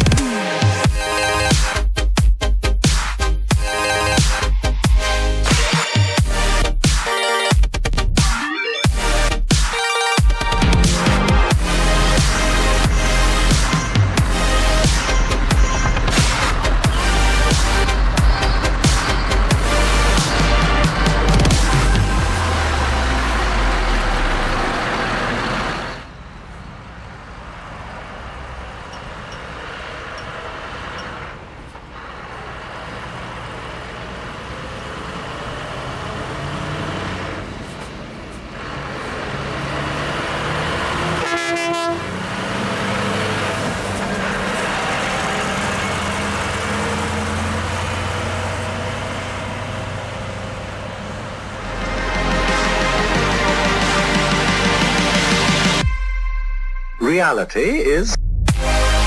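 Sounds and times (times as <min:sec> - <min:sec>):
truck driving past: 0:11.6 - 0:55.8
truck horn blast: 0:41.0 - 0:43.1.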